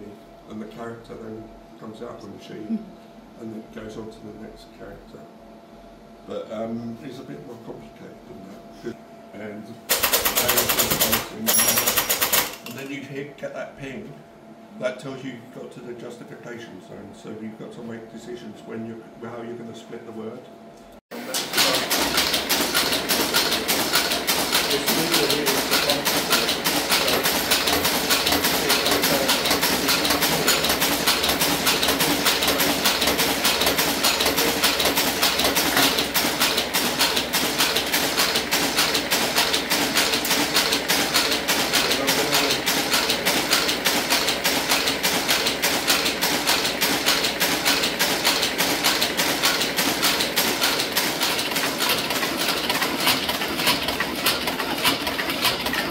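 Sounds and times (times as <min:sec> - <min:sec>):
type caster mechanical clatter: 0:09.9 - 0:13.0, 0:21.3 - 0:55.9.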